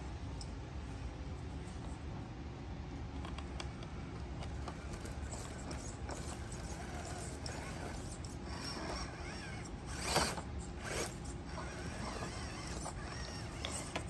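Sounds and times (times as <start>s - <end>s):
toy truck motor whining: 3.2s - 14.0s.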